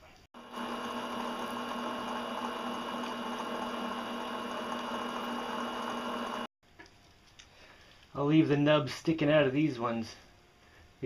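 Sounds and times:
drill boring through metal: 0.4s - 6.5s.

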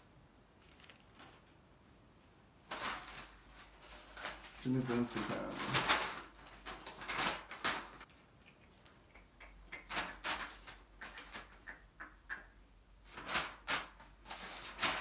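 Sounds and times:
notebook pages flipping: 0.6s - 1.5s, 2.7s - 8.2s, 9.8s - 11.5s, 13.1s - 15.0s.

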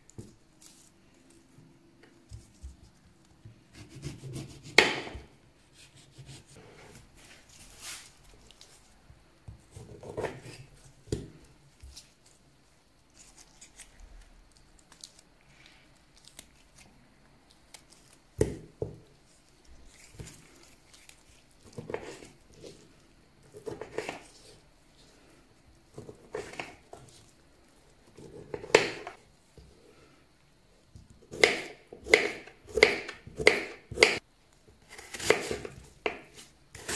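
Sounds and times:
orange peel tearing: 13.1s - 15.3s.

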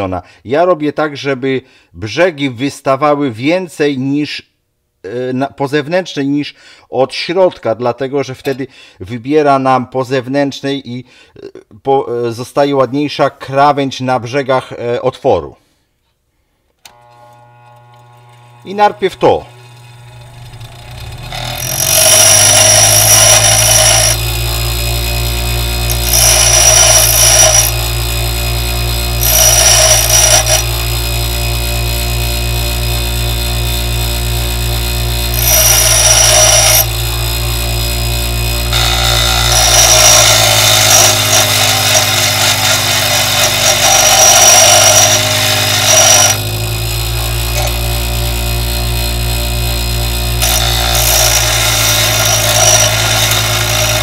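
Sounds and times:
bench grinder humming: 16.9s - 54.0s
grinding wheel hissing on steel: 20.6s - 54.0s.

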